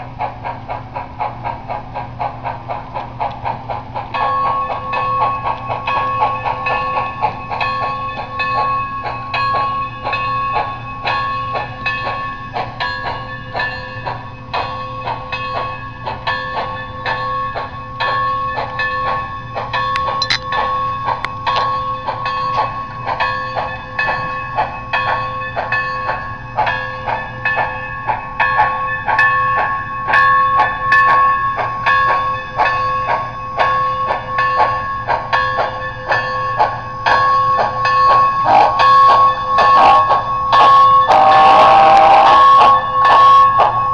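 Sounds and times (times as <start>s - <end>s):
model train steam chuffs: 0.0s - 43.9s
steady ringing tone: 4.2s - 41.1s.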